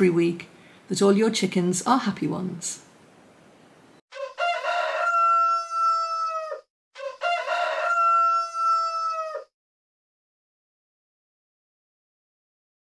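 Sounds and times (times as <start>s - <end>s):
rooster crowing: 4.1s - 9.5s.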